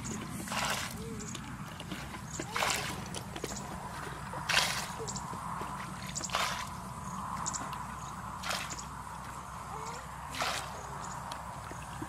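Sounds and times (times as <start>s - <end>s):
wet squelching: 0.0s - 6.8s, 10.3s - 11.0s
muddy water splashing: 0.0s - 12.0s.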